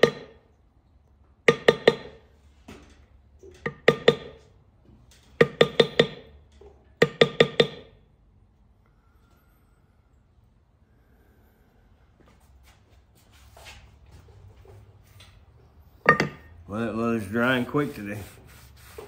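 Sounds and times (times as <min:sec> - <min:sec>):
mallet tapping metal stamp: 0:00.0 - 0:00.4, 0:01.4 - 0:02.2, 0:03.6 - 0:04.4, 0:05.4 - 0:06.3, 0:07.0 - 0:07.9, 0:16.0 - 0:16.5.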